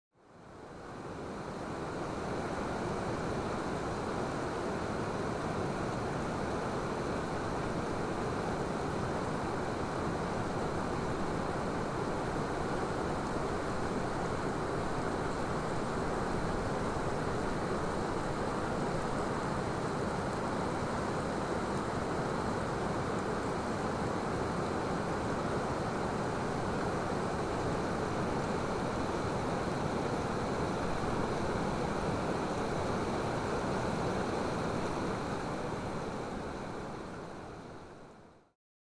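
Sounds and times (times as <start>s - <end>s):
wind: 0.1s - 38.5s
rushing water: 0.4s - 38.3s.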